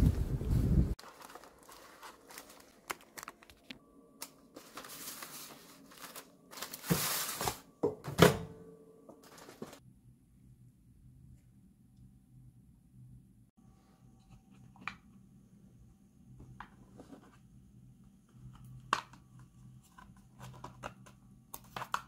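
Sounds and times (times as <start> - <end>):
paper rustling and crinkling: 1.0 - 7.7, 9.2 - 9.8.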